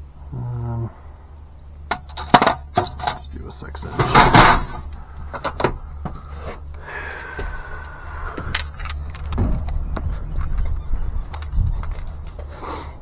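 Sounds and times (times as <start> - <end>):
steady low rumble: 0.0 - 13.0
metal tools clinking and rattling: 1.9 - 5.7, 7.1 - 12.9
falling squeak: 9.8 - 12.5.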